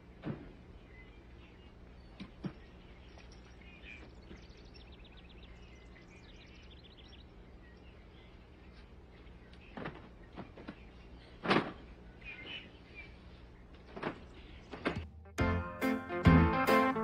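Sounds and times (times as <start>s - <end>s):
steady low hum: 0.0s - 17.0s
high chirp trills: 0.8s - 11.4s.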